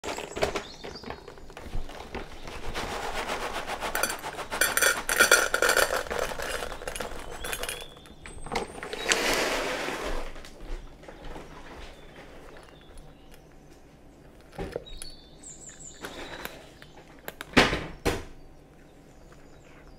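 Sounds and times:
kibble rattling into metal bowl: 0:00.0 - 0:02.5, 0:03.2 - 0:09.6
cat crunching kibble: 0:04.1 - 0:09.6.

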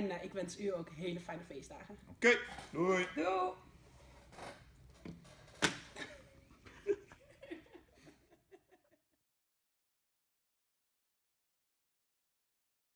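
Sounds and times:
woman laughing: 0:06.0 - 0:09.2.

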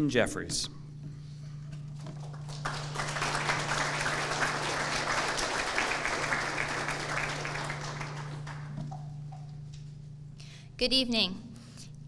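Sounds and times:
audience applauding: 0:02.0 - 0:09.2.

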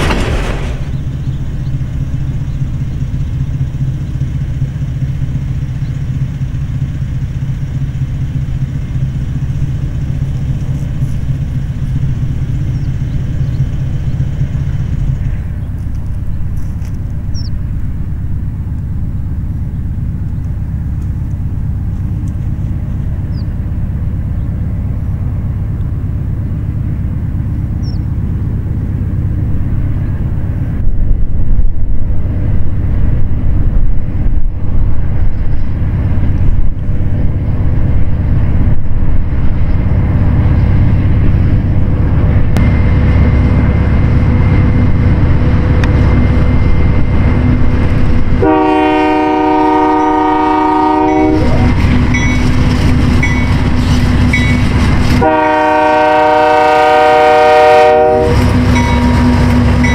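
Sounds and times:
freight train rumbling past: 0:00.0 - 0:59.9
locomotive air horn: 0:48.4 - 0:51.8, 0:55.1 - 0:59.4.

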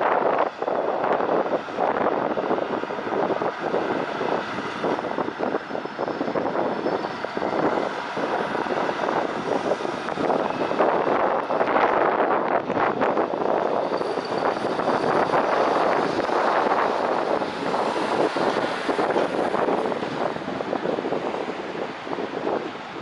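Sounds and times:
diesel lorry engine droning: 0:00.0 - 0:21.7.

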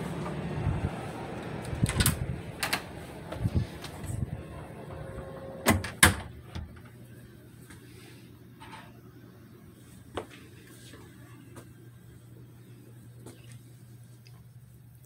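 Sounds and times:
door clicks and knocks: 0:05.6 - 0:06.8.

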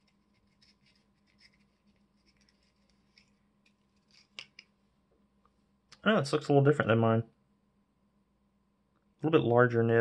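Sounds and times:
fingers handling small parts: 0:00.0 - 0:04.8.

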